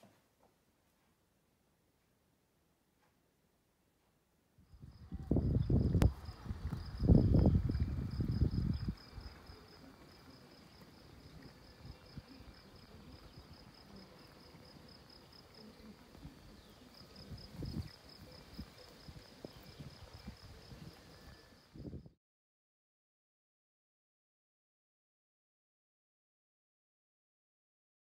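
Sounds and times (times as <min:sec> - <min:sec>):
cricket chirping: 0:04.6 - 0:22.1.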